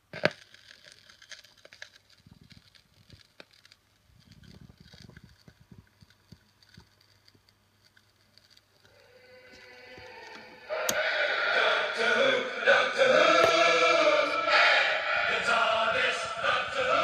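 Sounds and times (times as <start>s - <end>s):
faint irregular clicks and crackles: 0.0s - 10.5s
soft low rubbing rumbles: 1.9s - 10.7s.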